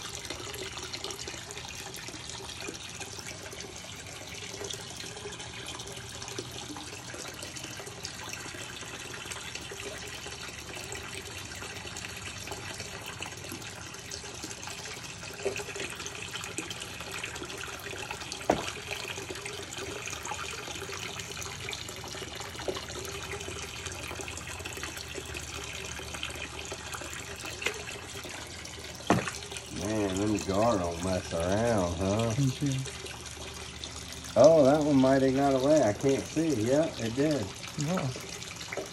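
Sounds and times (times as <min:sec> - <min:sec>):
aquarium water rushing and trickling: 0:00.0 - 0:38.9
sharp knock: 0:18.5 - 0:18.7, 0:29.1 - 0:29.4.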